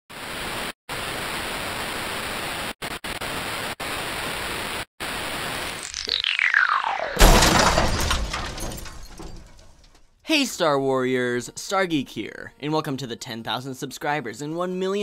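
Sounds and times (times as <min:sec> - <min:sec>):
static hiss: 0:00.2 - 0:06.2
whistle gliding down: 0:05.8 - 0:07.2.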